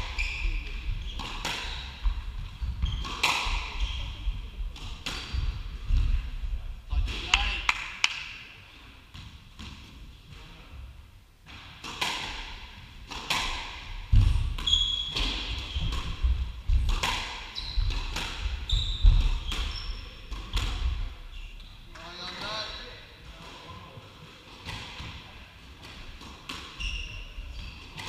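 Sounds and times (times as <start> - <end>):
shoes squeaking on wooden floor: 0.0 - 4.4, 14.6 - 16.3, 17.5 - 20.2, 26.7 - 28.0.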